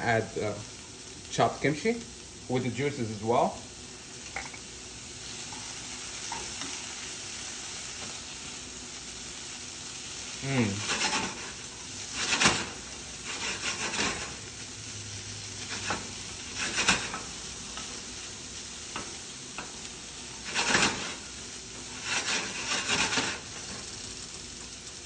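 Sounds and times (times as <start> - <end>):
vegetables sizzling in a frying pan: 0.0 - 25.0
wooden spatula scraping a pan: 10.6 - 14.5, 15.6 - 17.4, 19.0 - 23.9.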